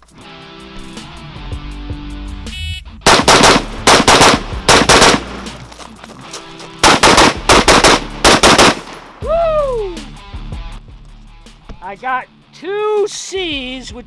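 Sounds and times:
rifle gunshots: 3.0 - 5.6, 6.8 - 9.2.

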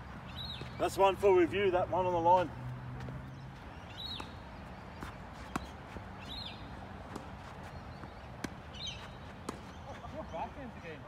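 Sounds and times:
bird chirping: 0.2 - 1.0, 3.1 - 6.7.

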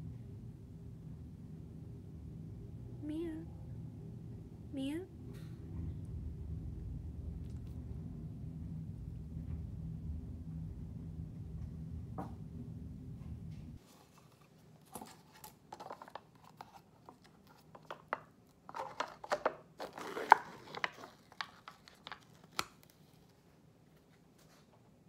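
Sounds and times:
plastic lid crinkling and clicking: 15.7 - 22.9.

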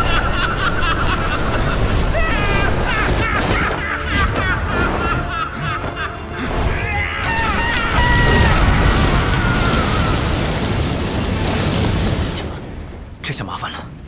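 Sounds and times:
background music: 0.0 - 9.2
magical energy blast rumble: 7.4 - 13.2.

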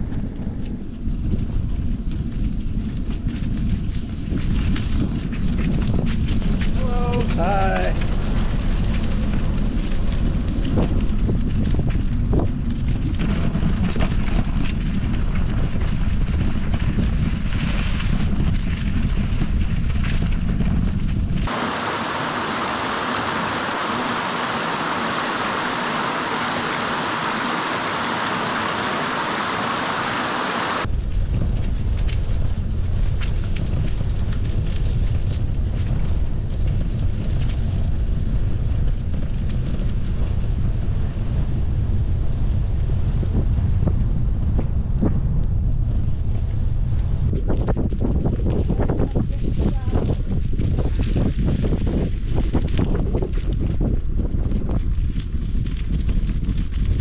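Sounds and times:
wind rumble on microphone: 0.0 - 57.0
brook rushing over stones: 21.4 - 30.9.

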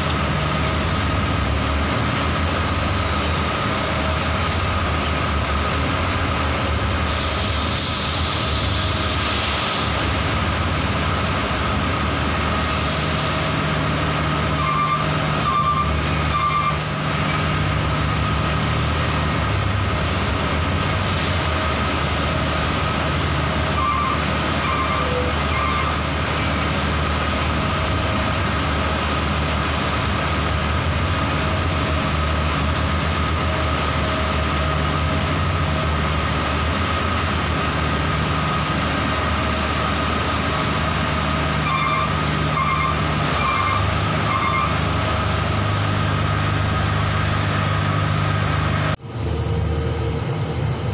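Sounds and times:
truck diesel engine running: 0.0 - 50.9
air brakes hissing: 7.0 - 10.3, 12.6 - 13.7.

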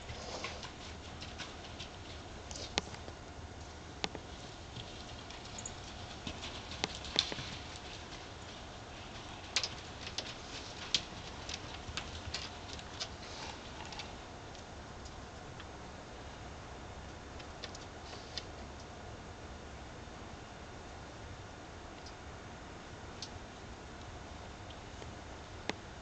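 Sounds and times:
horse hooves knocking: 0.0 - 3.2, 4.0 - 14.2
low wind rumble: 0.0 - 26.0.

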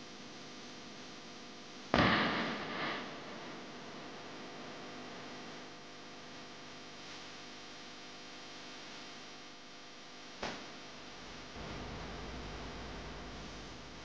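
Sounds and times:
steady hiss: 1.9 - 5.2, 10.5 - 14.0
faint low hum: 10.0 - 14.0.

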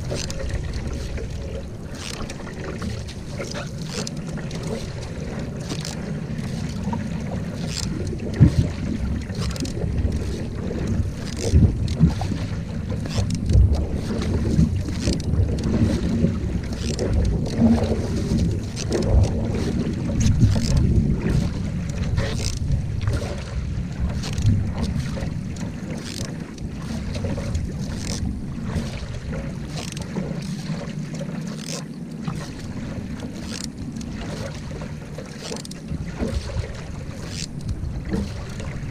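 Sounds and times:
wind buffeting microphone: 0.0 - 30.7
paddle strokes splashing: 0.0 - 38.9
water rushing under hull: 0.0 - 38.9.

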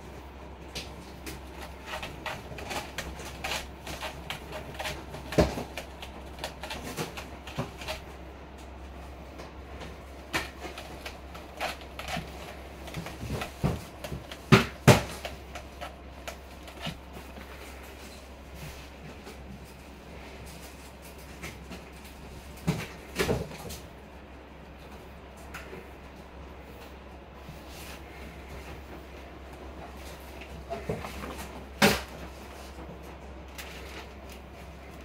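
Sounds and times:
cat claws scratching rope post: 0.8 - 8.2, 10.2 - 17.9.

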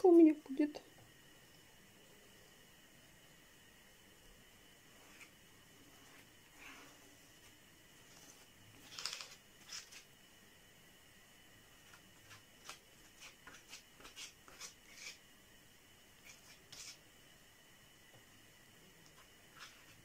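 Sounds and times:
spatula scraping putty: 12.3 - 15.2.

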